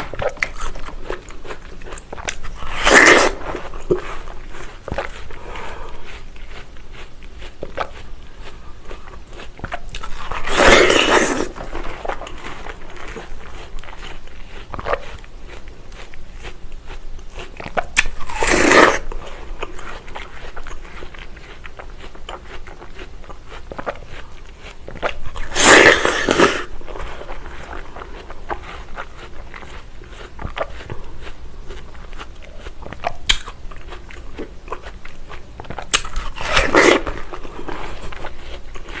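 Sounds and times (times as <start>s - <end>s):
biting into watermelon: 0.0s - 39.0s
crunchy chewing: 0.0s - 39.0s.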